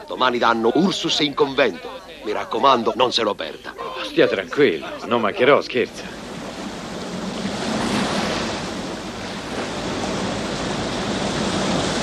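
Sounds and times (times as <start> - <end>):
sea surf breaking on shore: 3.4 - 12.0.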